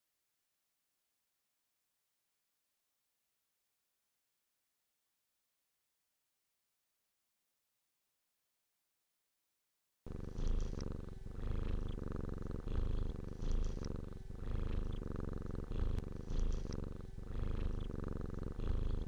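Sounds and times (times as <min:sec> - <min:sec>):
cat purring: 0:10.1 - 0:19.0.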